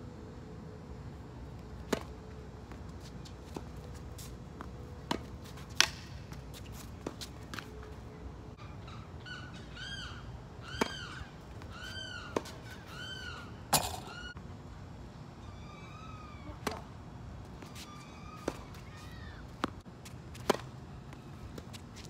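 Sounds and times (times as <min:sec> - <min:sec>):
tennis ball hits: 0:04.6 - 0:07.7, 0:10.7 - 0:13.1
bird calling: 0:08.6 - 0:14.4.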